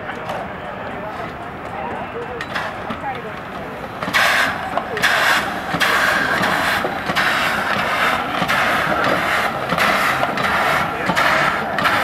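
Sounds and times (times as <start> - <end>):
steam engine chuffing: 2.4 - 12.0.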